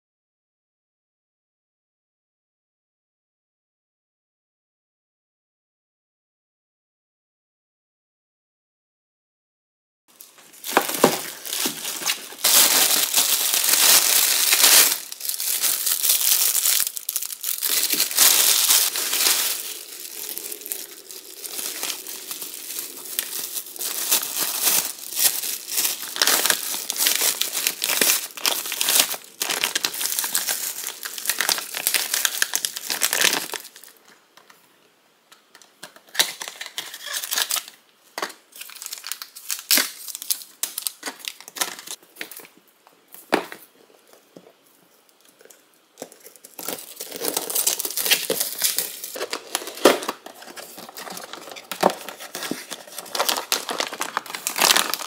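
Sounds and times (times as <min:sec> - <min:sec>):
plastic bags crinkling: 0:10.2 - 0:34.0, 0:38.5 - 0:42.5, 0:45.3 - 0:55.0
cardboard box and paper sachets handled: 0:10.3 - 0:33.9, 0:45.5 - 0:55.0.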